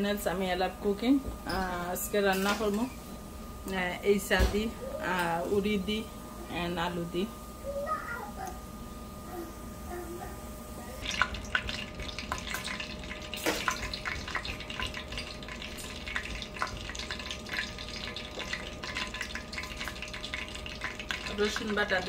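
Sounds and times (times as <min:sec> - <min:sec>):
hot oil crackling and popping: 0:11.0 - 0:22.0.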